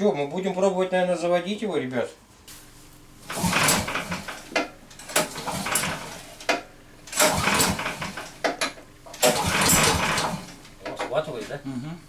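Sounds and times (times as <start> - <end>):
engine cranking and rattling: 3.2 - 11.2.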